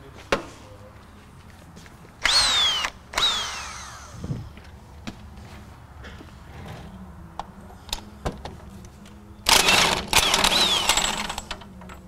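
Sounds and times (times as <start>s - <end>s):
impact wrench running: 2.2s - 4.2s, 9.5s - 11.5s.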